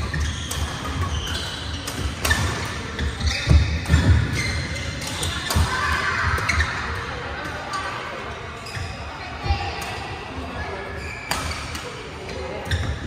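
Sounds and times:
sneakers squeaking on court floor: 0.0s - 9.6s, 10.4s - 13.0s
distant play on other courts: 0.0s - 13.0s
rackets striking shuttlecock: 11.2s - 12.0s.

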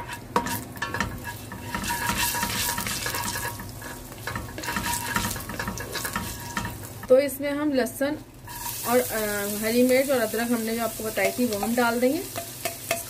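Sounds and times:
spatula scraping a pot: 0.0s - 6.9s
seeds sizzling in hot oil: 0.0s - 7.3s, 8.3s - 13.0s.

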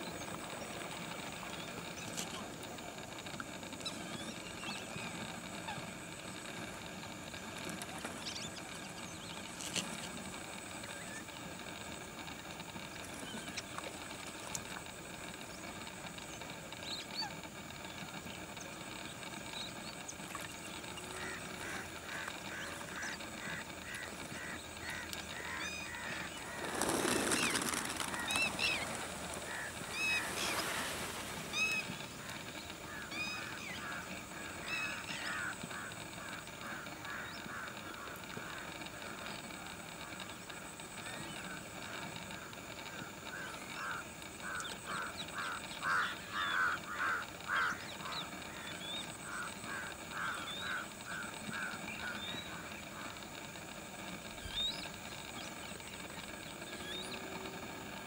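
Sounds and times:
waterbirds calling: 0.0s - 58.0s
loud rush of noise: 26.2s - 32.5s.

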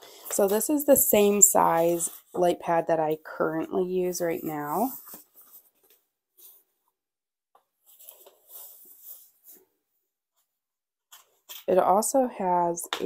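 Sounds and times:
foam packing sheet rustling: 4.1s - 6.7s.

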